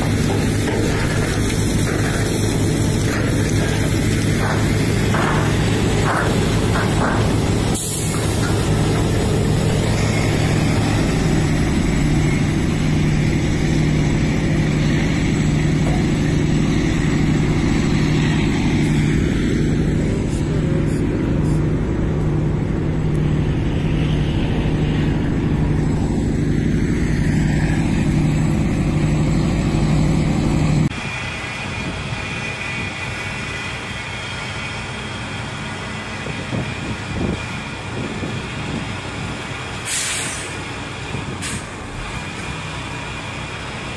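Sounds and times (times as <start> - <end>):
gravel pouring out: 0.0 - 21.6
diesel truck engine humming: 0.0 - 43.9.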